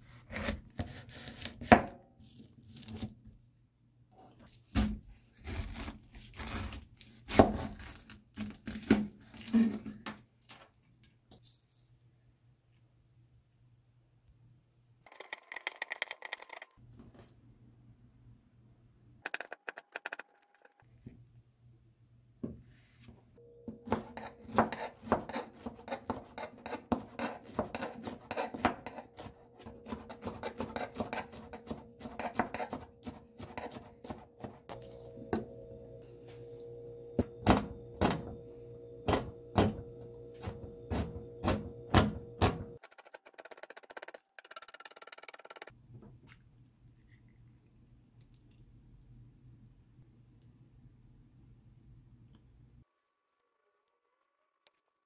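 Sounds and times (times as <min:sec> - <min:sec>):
knife cutting pineapple: 0:00.1 - 0:03.1, 0:23.9 - 0:34.6
faint steady hum: 0:34.7 - 0:42.8.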